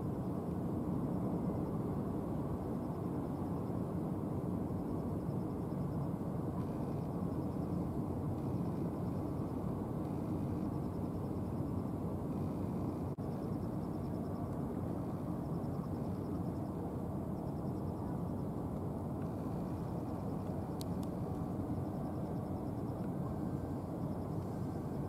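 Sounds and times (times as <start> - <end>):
ferry engine low rumble: 0.0 - 25.0.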